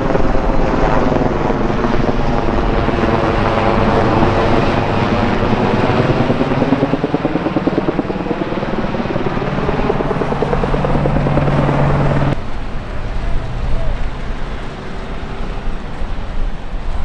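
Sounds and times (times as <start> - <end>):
helicopter rotor beating: 0.0 - 12.4.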